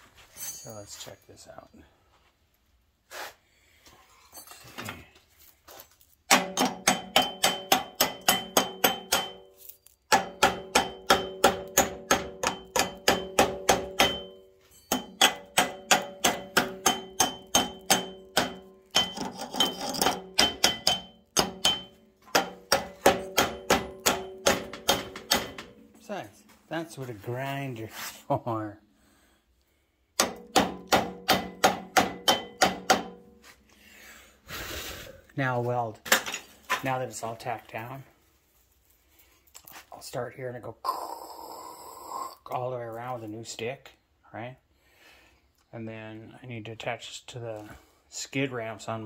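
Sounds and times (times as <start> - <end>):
hammer beating on steel tube: 6.3 - 9.5, 10.1 - 19.3, 19.9 - 25.8, 30.2 - 33.3.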